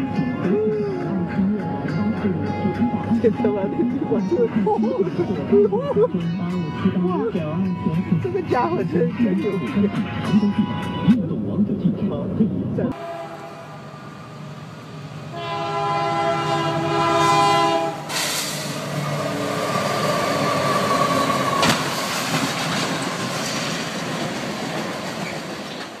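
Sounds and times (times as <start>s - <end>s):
train rumbling past: 12.9s - 26.0s
locomotive horn: 13.0s - 22.2s.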